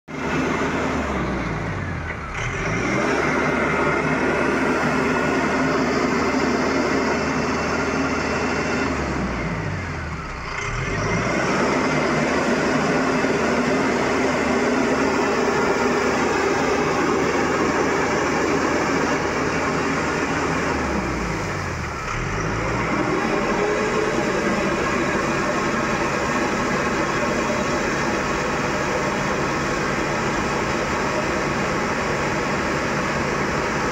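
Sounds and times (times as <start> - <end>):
diesel engine running: 0.0 - 33.9
wheels splashing through water: 9.8 - 33.9.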